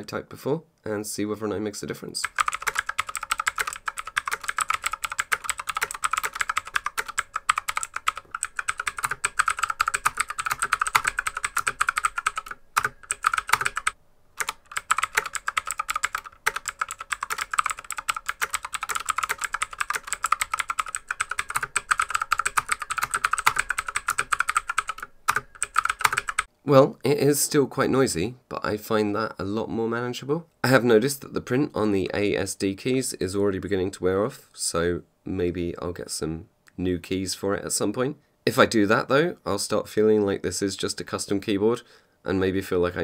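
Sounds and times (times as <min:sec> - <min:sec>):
fast typing on mechanical keyboard: 0:02.2 - 0:26.5.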